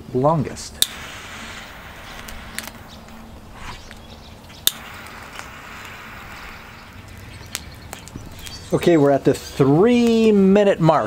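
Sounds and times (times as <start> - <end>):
wind buffeting microphone: 0.2 - 9.4
sharp click: 0.8 - 1.1, 2.1 - 5.5.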